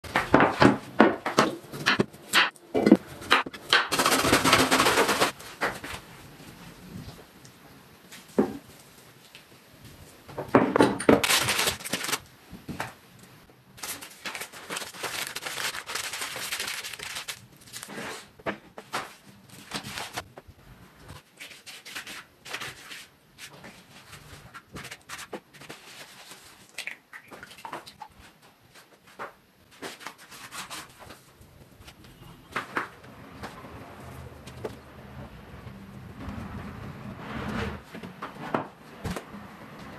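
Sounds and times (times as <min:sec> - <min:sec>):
pastry sheets crinkling: 0:11.2 - 0:12.3, 0:13.8 - 0:20.3.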